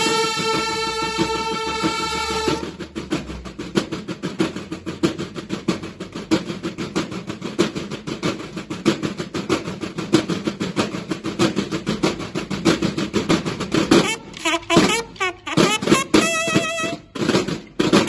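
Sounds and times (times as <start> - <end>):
held bugle note: 0.0 - 2.7, 13.9 - 17.1
snare drums marching cadence: 0.0 - 18.0.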